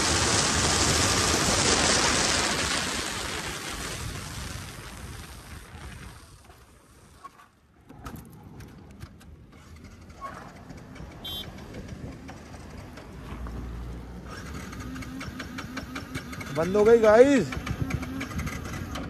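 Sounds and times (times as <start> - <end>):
motorcycle rolling: 0.0 - 19.0
cars passing on road: 8.4 - 19.0
short high beep: 11.2 - 11.5.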